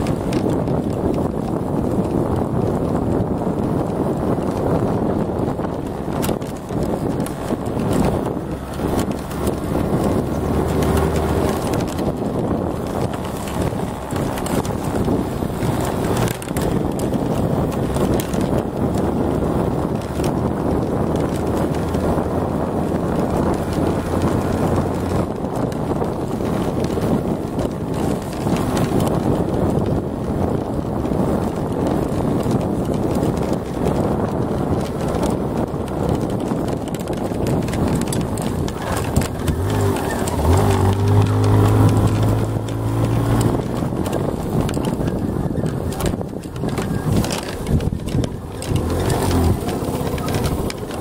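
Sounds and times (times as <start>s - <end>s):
moped engine running: 0.0s - 51.0s
rattling and jolting on rough road: 0.0s - 51.0s
wind buffeting microphone: 0.0s - 51.0s.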